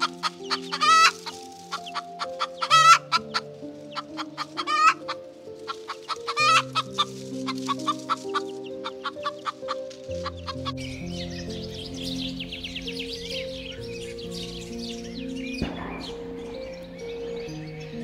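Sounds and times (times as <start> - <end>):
hen clucking: 0.0 - 10.7
soft background music: 0.0 - 18.0.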